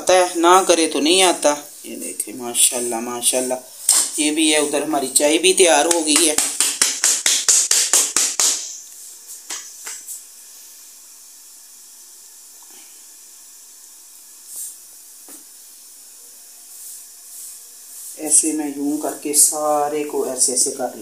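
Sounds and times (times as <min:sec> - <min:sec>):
faint gas hiss: 0:00.0 - 0:05.7, 0:08.6 - 0:21.0.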